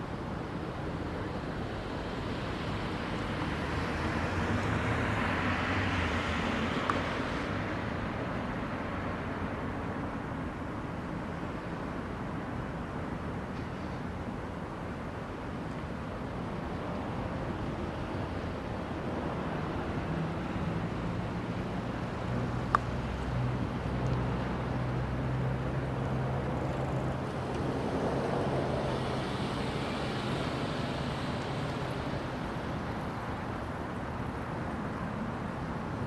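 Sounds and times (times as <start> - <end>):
distant road traffic: 0.0 - 36.0
vehicle engine humming: 21.8 - 34.9.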